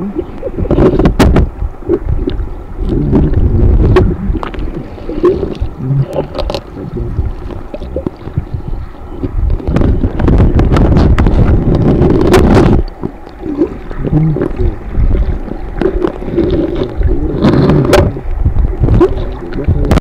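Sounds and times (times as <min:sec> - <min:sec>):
underwater stream rush: 0:00.0 - 0:20.0
sharp clicks and knocks: 0:00.7 - 0:02.4.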